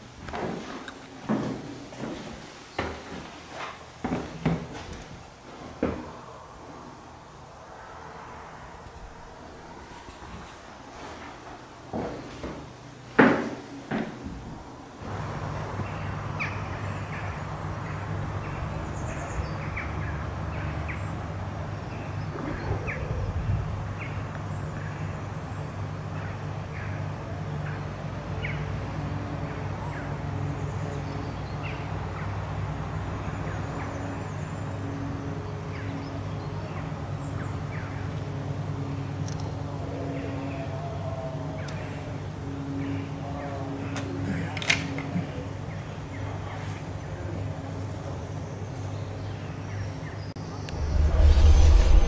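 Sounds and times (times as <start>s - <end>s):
steady low hum: 50.5s - 52.0s.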